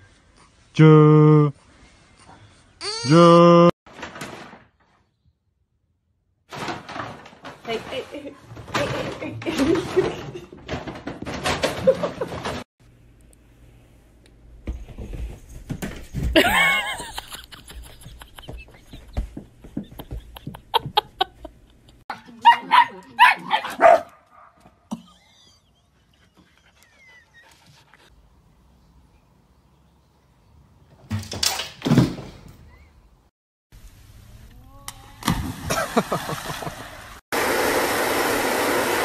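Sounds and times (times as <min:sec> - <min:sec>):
household knocks and rustles: 0:03.9 - 0:05.0, 0:06.5 - 0:12.7, 0:14.6 - 0:17.1, 0:31.0 - 0:32.6.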